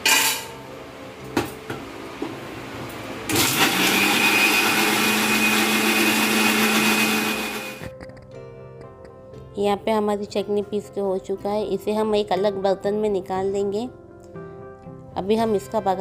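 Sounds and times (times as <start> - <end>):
mixer grinder motor whining: 3.2 - 7.9.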